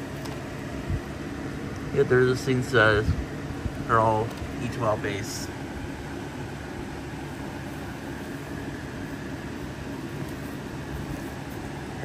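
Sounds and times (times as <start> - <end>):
room hum and hiss: 0.0 - 12.0.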